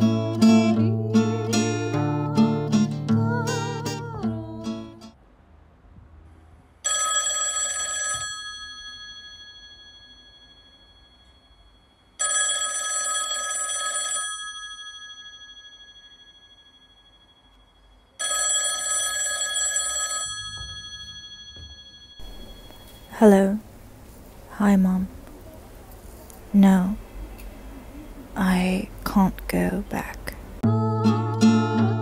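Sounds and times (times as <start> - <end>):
telephone ringing: 6.8 - 17.6, 18.2 - 24.5.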